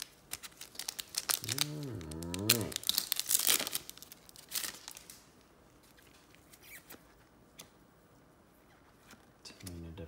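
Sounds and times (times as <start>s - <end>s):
foil wrapper crinkling and tearing: 0.0s - 6.8s
cards rustling and ticking: 0.0s - 7.8s.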